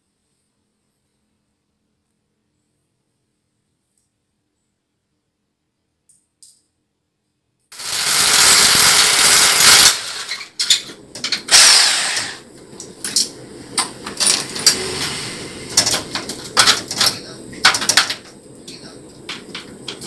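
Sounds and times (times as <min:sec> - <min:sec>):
cordless drill running: 0:07.8 - 0:10.4, 0:11.5 - 0:12.4.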